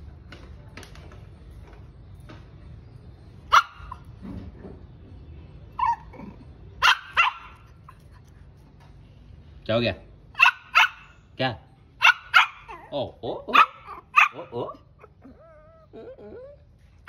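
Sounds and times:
puppy yapping: 5.8 - 7.8, 12.0 - 16.6.

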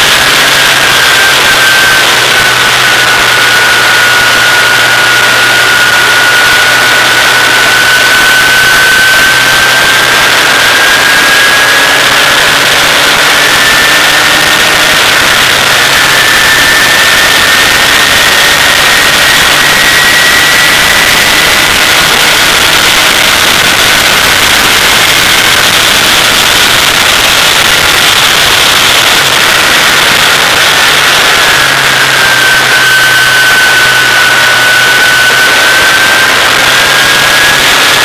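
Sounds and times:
race car engine at speed: 0.0 - 38.0
wind rush: 0.0 - 38.0.

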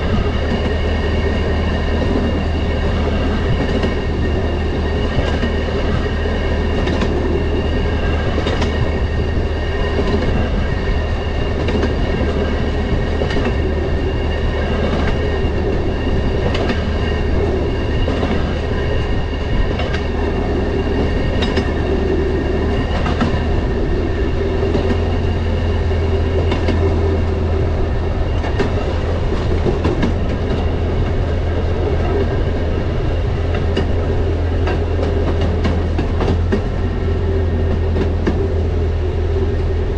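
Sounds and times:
rail motorcar engine drone: 0.0 - 39.9
wheels clicking over rail joints: 11.4 - 13.9, 14.5 - 23.8.

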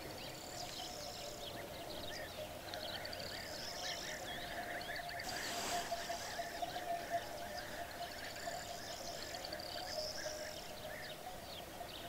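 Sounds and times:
small birds chirping: 0.0 - 12.0
steady faint tone: 0.0 - 12.0
brief rush of hiss: 5.2 - 6.5.

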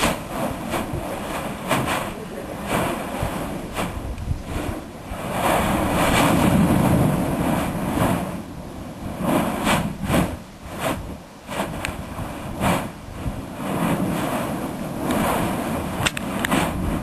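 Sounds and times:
volcano erupting roar: 0.0 - 17.0
sharp clicks: 16.0 - 16.6.

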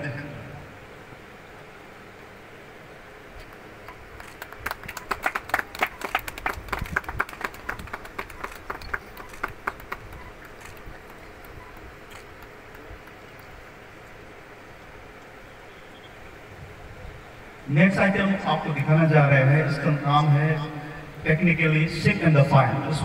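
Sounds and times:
outdoor background hum: 0.0 - 23.0
audience clapping: 3.8 - 13.6.

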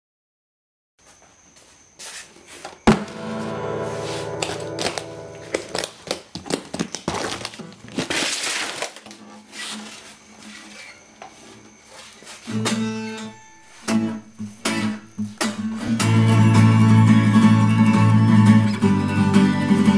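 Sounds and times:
acoustic guitar strummed chords: 2.9 - 6.1, 12.5 - 19.9
guitar being handled: 2.9 - 6.8, 9.0 - 17.6.

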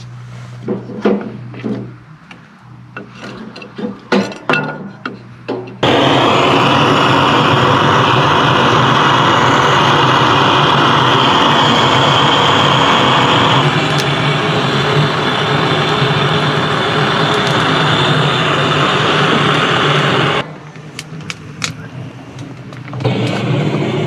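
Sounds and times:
blowtorch hissing: 5.8 - 20.4, 23.0 - 24.0.

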